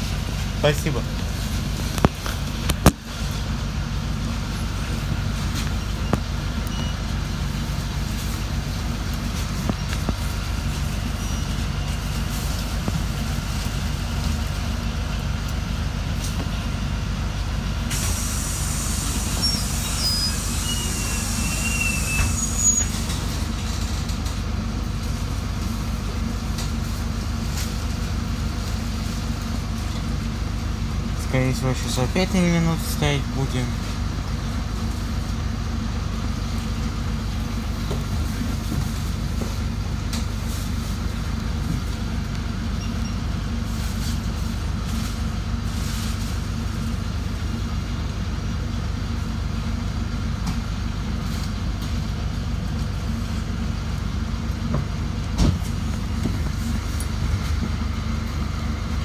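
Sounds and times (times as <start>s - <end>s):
bus diesel engine idling: 0.0s - 59.0s
faint high squeaks: 19.4s - 23.2s.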